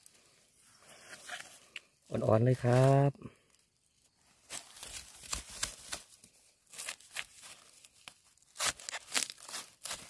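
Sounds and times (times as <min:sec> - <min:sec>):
blade crunching into soil: 0:04.4 - 0:10.0.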